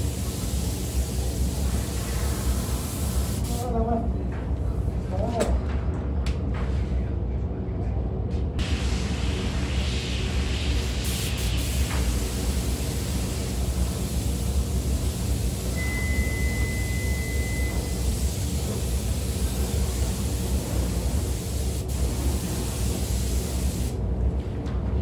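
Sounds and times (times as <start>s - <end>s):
spray gun spraying: 0.0s - 3.6s, 8.7s - 24.0s
ventilation air rushing with hum: 0.0s - 25.0s.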